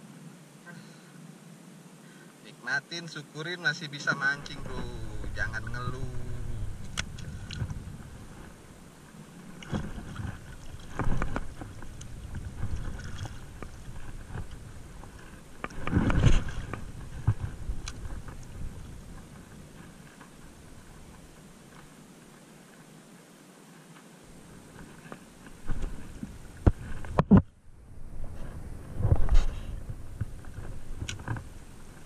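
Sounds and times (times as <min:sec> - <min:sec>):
wind buffeting microphone: 0:04.2 - 0:21.6, 0:24.3 - 0:32.0
water sloshing: 0:04.4 - 0:22.0.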